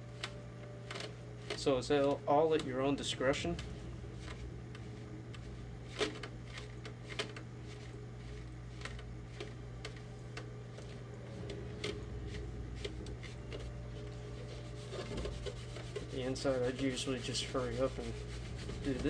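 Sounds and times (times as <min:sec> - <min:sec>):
steady low hum: 0:00.0 - 0:19.0
cloth rubbing on plastic: 0:11.3 - 0:19.0.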